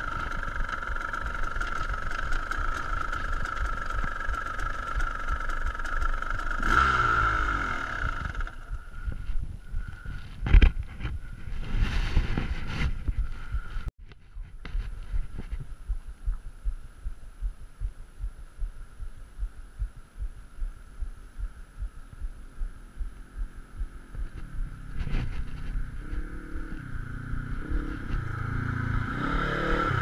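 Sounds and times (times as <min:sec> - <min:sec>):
side-by-side engine approaching: 0:00.0 - 0:13.9, 0:22.4 - 0:30.0
wind buffeting microphone: 0:07.9 - 0:19.1.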